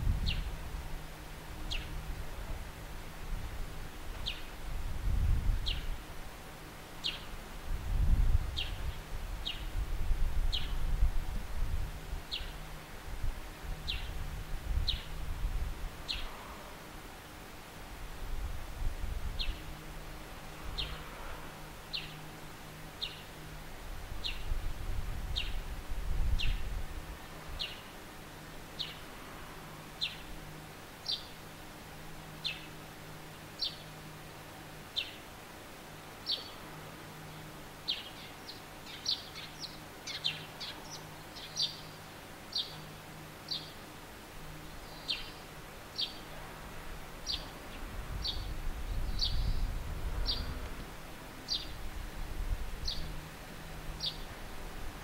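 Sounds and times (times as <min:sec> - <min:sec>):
sparrow chirping: 0:01.7 - 0:02.0, 0:05.6 - 0:06.0, 0:07.0 - 0:07.3, 0:08.6 - 0:09.7, 0:12.3 - 0:12.6, 0:13.8 - 0:14.2, 0:14.8 - 0:15.2, 0:16.0 - 0:16.3, 0:20.7 - 0:21.0, 0:23.0 - 0:23.3, 0:25.3 - 0:25.6, 0:28.8 - 0:29.0, 0:30.0 - 0:30.3, 0:31.0 - 0:31.4, 0:32.4 - 0:32.8, 0:33.6 - 0:34.0, 0:35.0 - 0:35.2, 0:36.2 - 0:36.6, 0:37.8 - 0:43.8, 0:44.7 - 0:46.3, 0:47.2 - 0:50.5, 0:51.5 - 0:51.8, 0:52.8 - 0:53.2, 0:54.0 - 0:54.3.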